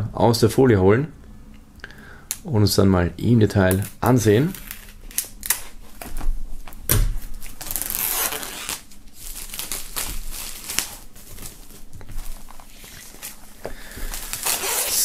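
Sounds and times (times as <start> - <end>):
plastic wrap crinkling and tearing: 3.7 - 15.0.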